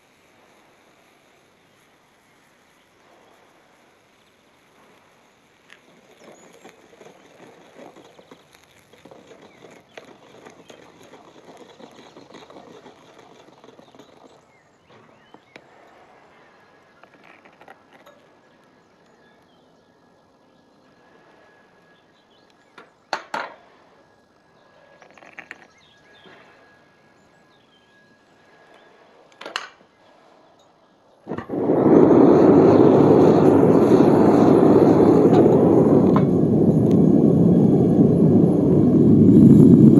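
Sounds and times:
furnace burner rushing: 0:00.0 - 0:18.0, 0:31.2 - 0:39.9.

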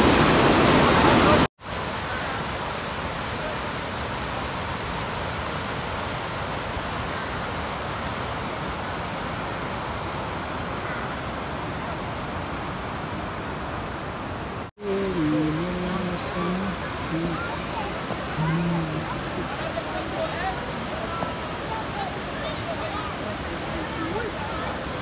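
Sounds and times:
river rushing: 0:00.0 - 0:25.0
people's voices: 0:14.8 - 0:25.0.

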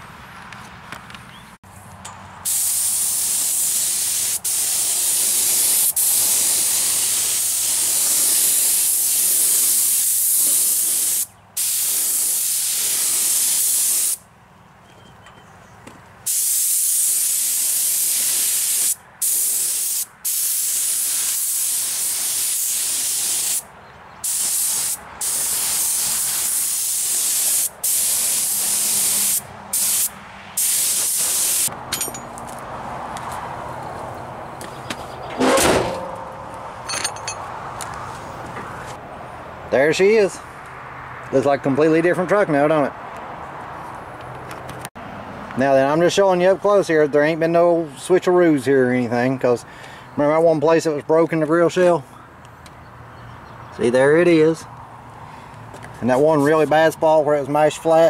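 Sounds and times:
aerosol can spraying hiss: 0:02.5 - 0:14.2, 0:16.3 - 0:23.6, 0:24.3 - 0:31.7.

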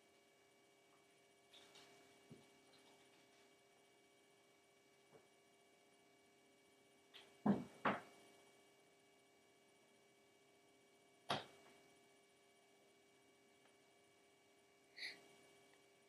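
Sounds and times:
faint electrical hum: 0:00.0 - 0:16.0.

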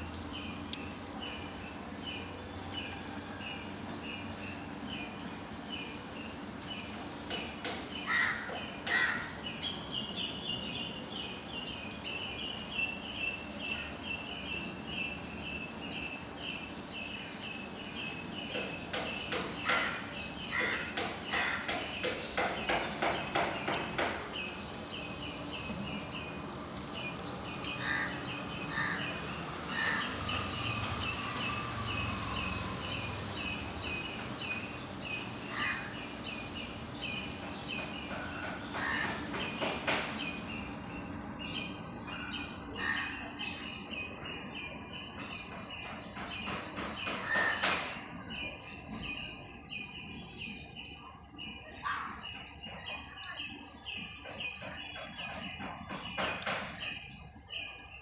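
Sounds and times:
birds chirping: 0:00.0 - 0:58.0
harsh bird calls: 0:03.6 - 0:58.0.

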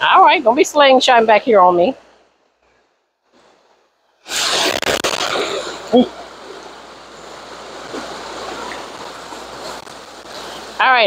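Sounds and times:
fast-flowing river current: 0:05.6 - 0:11.0.

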